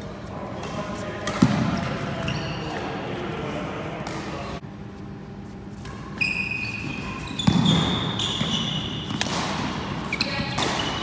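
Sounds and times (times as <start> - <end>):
rackets hitting shuttlecock: 0.6 - 2.0, 5.8 - 11.0
shoes squeaking on wooden floor: 6.2 - 9.2.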